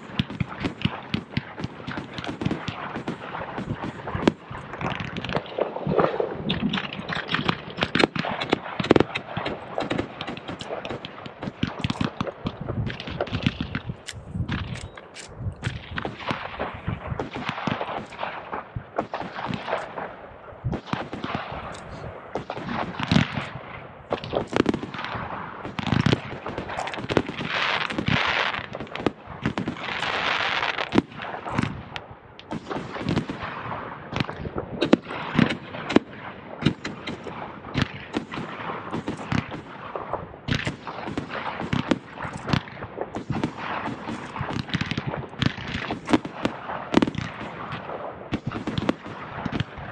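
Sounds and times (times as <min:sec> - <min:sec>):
fireworks bangs and crackles: 0:00.0 - 0:49.9
crackling hiss: 0:21.6 - 0:33.4.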